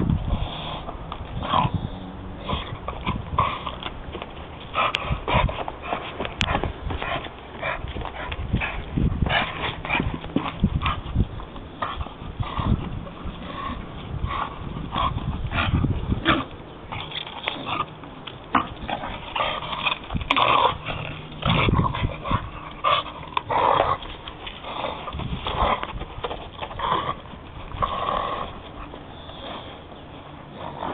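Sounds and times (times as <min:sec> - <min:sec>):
dog chewing wood: 0:02.4 - 0:30.9
dog breathing: 0:26.7 - 0:30.9.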